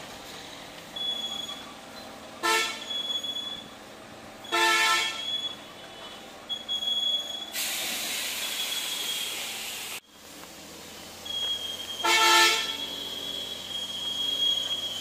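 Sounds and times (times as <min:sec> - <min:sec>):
vehicle horn honk: 0:02.4 - 0:03.0, 0:04.4 - 0:06.2, 0:12.0 - 0:12.9.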